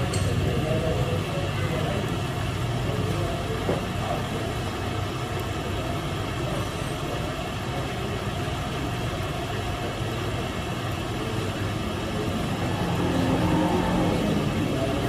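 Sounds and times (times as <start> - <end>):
machinery humming: 10.4 - 15.0.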